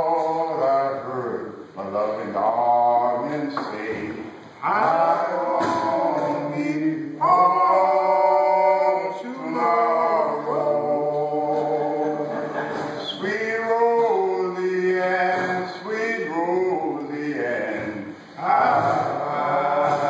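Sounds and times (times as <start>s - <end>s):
men singing a cappella in harmony: 0.0s - 20.0s.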